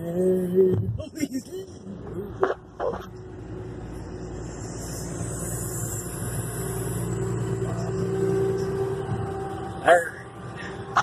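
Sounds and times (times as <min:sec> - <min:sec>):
road and engine noise inside car: 0:00.0 - 0:11.0.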